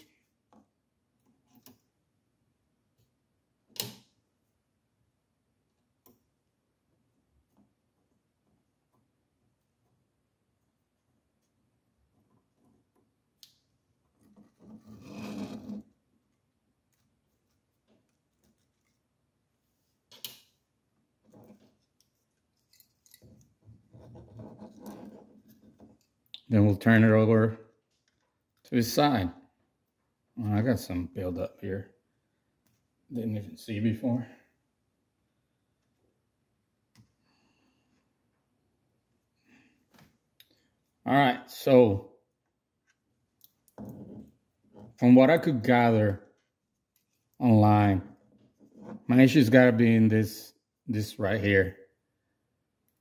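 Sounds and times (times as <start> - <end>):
handling noises of parts and wires: 0.0 - 2.1, 5.6 - 26.4, 42.3 - 49.6.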